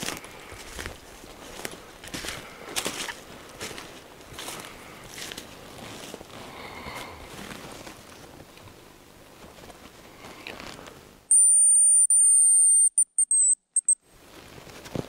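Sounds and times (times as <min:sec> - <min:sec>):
grouse whistled song: 0:11.3 - 0:14.0.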